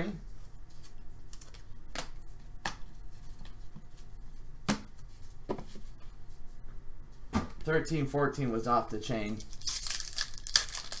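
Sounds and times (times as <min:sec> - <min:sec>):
faint steady hum: 0:00.0 - 0:11.0
cards being flipped through: 0:09.4 - 0:11.0.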